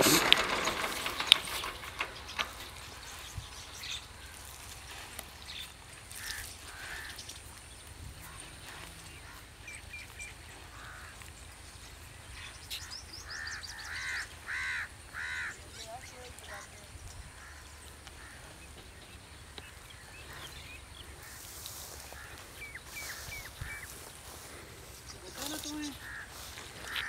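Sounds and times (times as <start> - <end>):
bird calls: 0.0 - 27.0
crow cawing: 6.1 - 7.2, 10.6 - 11.4, 13.2 - 15.8, 17.3 - 18.6, 20.3 - 27.0.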